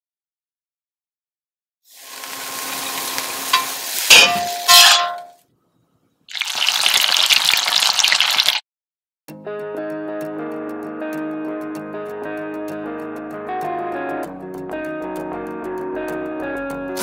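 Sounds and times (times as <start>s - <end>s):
food deep-frying in oil: 1.9s - 5.2s, 6.3s - 8.6s
vegetables sizzling in a wok: 1.9s - 5.2s, 6.3s - 8.6s
spatula scraping a pan: 3.5s - 5.3s.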